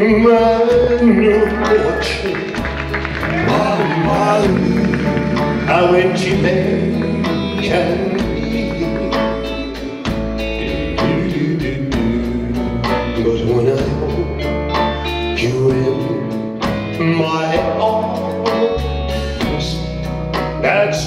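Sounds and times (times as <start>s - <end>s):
electric bass: 0.0s - 21.0s
man singing: 0.0s - 21.0s
steady drum beat: 0.1s - 14.3s.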